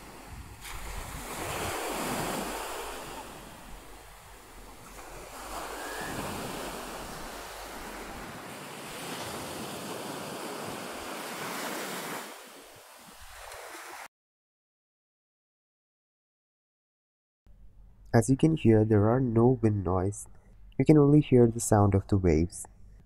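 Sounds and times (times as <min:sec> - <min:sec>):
sea waves washing onto beach: 0:00.0 - 0:14.1.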